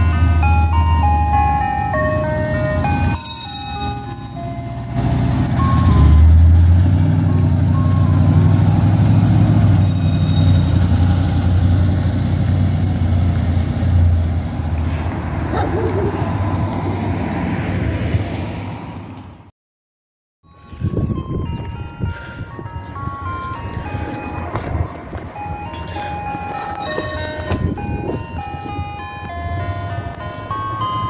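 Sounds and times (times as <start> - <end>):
ice cream truck jingle: 0.0 - 11.5, 20.4 - 31.0
truck engine driving past: 3.8 - 19.0.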